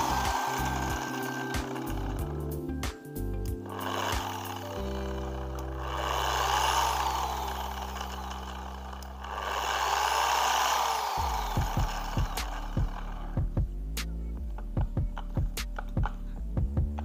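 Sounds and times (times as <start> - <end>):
polisher motor running: 0.0 - 13.6
background music: 0.0 - 17.0.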